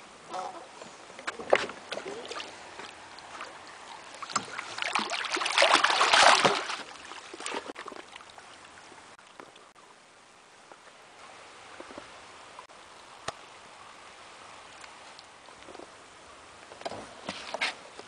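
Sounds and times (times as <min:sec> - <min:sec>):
water sloshing against wooden post: 0:01.1 - 0:08.4.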